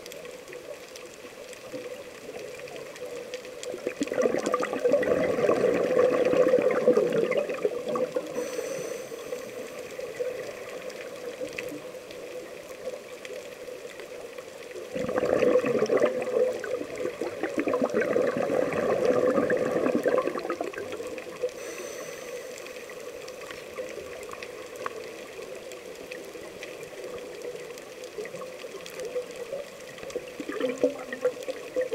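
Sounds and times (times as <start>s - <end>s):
regulator bubbling exhalation: 4.0s - 9.6s, 14.9s - 20.9s
high hiss of inhalation: 8.3s - 9.9s, 21.6s - 23.2s.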